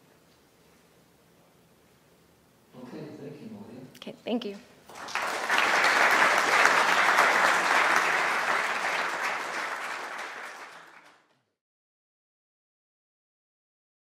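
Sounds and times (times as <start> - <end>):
audience applauding: 4.9 - 11.4.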